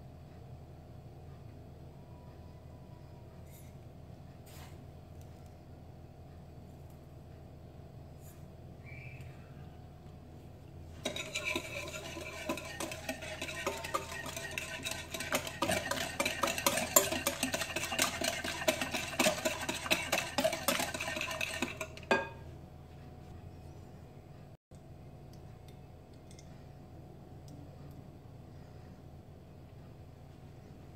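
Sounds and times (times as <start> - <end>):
whisk clinking in glass bowl: 11.0 - 22.4.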